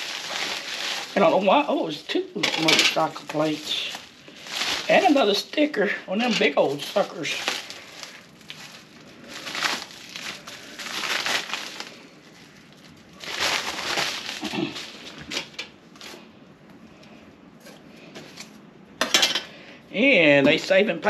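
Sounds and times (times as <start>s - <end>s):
plastic bag crinkling: 0.0s - 16.2s.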